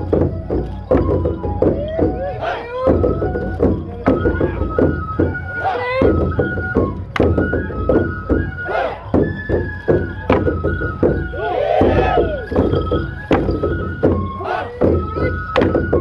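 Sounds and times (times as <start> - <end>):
high flute melody: 0.0 - 16.0
drum strikes: 6.0 - 16.0.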